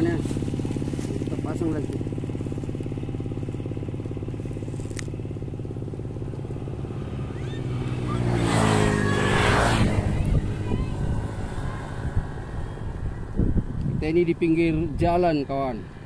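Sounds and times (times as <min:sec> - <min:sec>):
vehicle engine running: 0:00.0 - 0:16.0
vehicle passing close by: 0:00.0 - 0:16.0.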